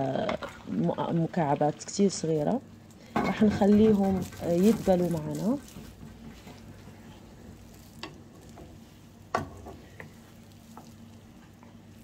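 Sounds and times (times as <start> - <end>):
onions sizzling in butter: 4.1 - 12.0.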